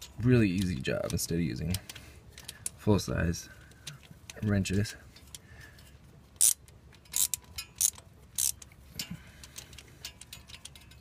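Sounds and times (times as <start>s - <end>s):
hand ratchet clicking: 6.4s - 11.0s.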